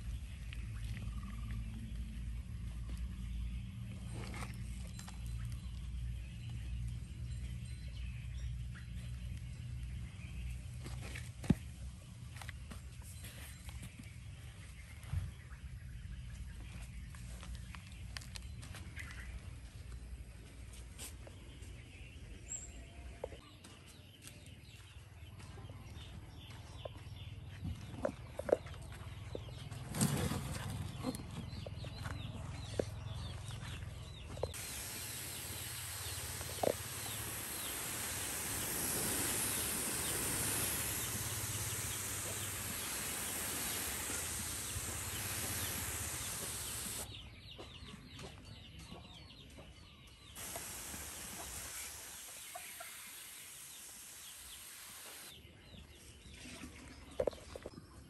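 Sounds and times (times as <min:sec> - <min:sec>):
steady hiss: 0:34.5 - 0:47.1, 0:50.4 - 0:55.4.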